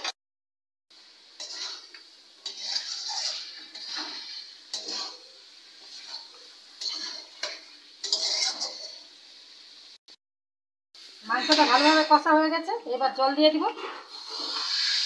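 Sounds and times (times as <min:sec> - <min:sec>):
food sizzling: 0:00.9 - 0:10.2, 0:11.0 - 0:15.0
metal spoon scraping a metal pan: 0:01.4 - 0:09.1, 0:11.3 - 0:12.3, 0:13.6 - 0:15.0.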